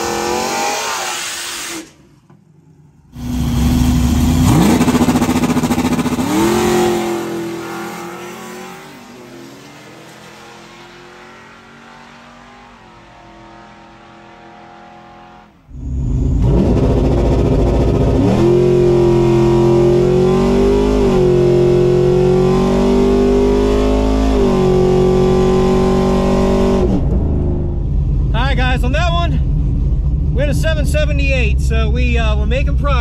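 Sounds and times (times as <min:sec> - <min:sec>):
engine accelerating hard: 0:03.0 - 0:33.0.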